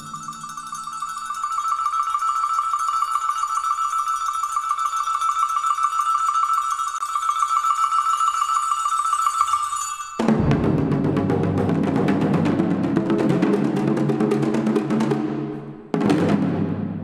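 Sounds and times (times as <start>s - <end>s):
metallic bell roll: 0.0s - 10.6s
loud drums: 10.2s - 17.0s.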